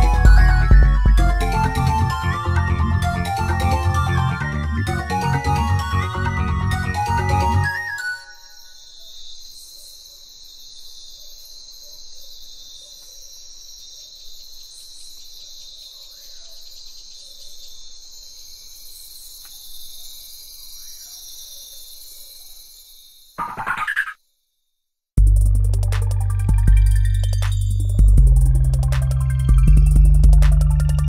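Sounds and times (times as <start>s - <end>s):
faint sliding calls: 23.4s - 24.2s
high-pitched pulsing chirring: 23.4s - 24.2s
short louder sound: 23.4s - 24.2s.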